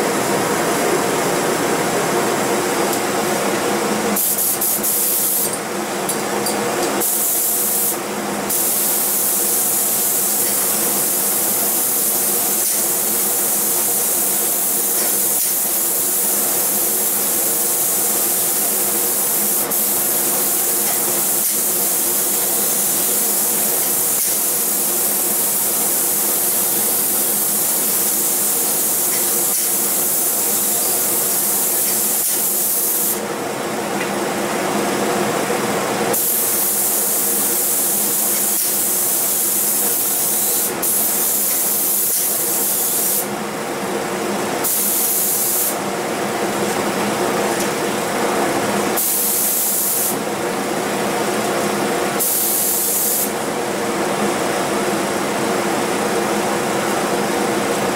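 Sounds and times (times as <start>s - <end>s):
spray gun hissing: 4.2s - 5.5s, 7.0s - 33.2s, 36.1s - 43.3s, 44.6s - 45.8s, 49.0s - 50.2s, 52.2s - 53.4s.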